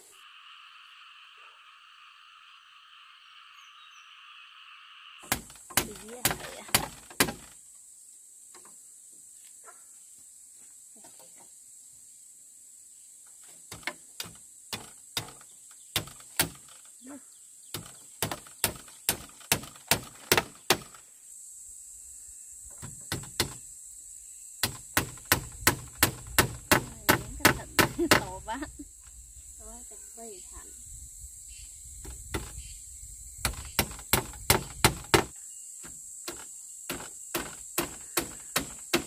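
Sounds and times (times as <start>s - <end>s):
hand tool striking wood: 5.2s - 7.6s, 13.6s - 16.8s, 17.7s - 21.0s, 22.8s - 23.6s, 24.6s - 28.4s, 32.3s - 32.6s, 33.4s - 39.0s.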